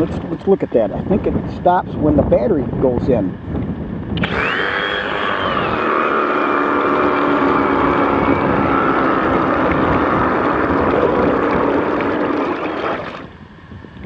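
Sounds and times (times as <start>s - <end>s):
water churning and splashing: 4.2s - 13.4s
reciprocating saw motor whine: 4.2s - 13.5s.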